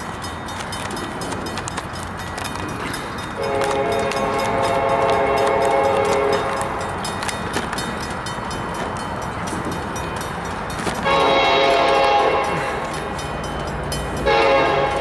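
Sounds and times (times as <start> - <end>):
crossing bell ringing: 0.0 - 15.0
locomotive horn blast: 3.4 - 6.8, 11.0 - 12.9, 14.2 - 15.0.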